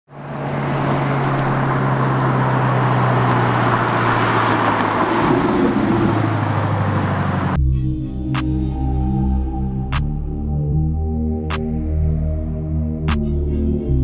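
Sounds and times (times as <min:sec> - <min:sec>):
sports car engine passing: 0:00.1 - 0:07.6
tyre and road noise: 0:00.1 - 0:07.6.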